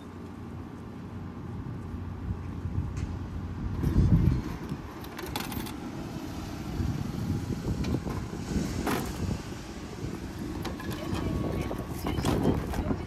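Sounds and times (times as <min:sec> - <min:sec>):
street background noise: 0:00.0 - 0:13.0
wind on microphone: 0:01.6 - 0:05.0, 0:06.4 - 0:13.0.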